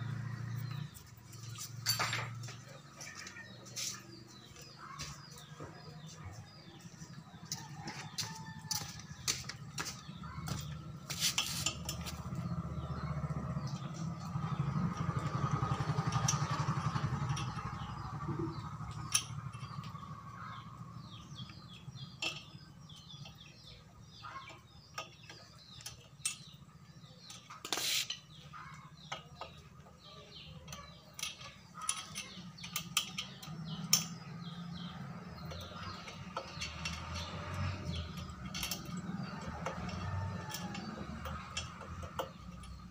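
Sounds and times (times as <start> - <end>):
metallic tool clicks and clinks: 16.1 - 20.0.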